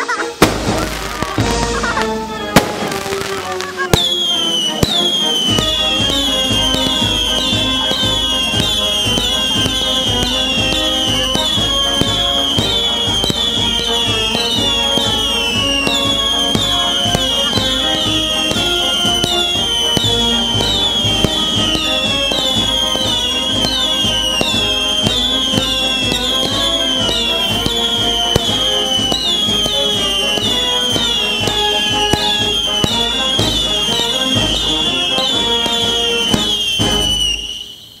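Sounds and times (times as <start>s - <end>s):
firework cracks: 0.0s - 38.0s
whistling fireworks shrieking: 0.0s - 38.0s.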